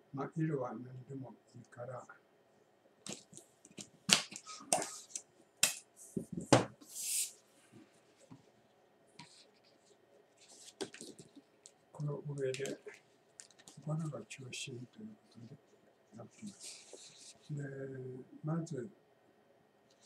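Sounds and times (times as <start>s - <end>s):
short hiss of air: 6.9s - 7.4s.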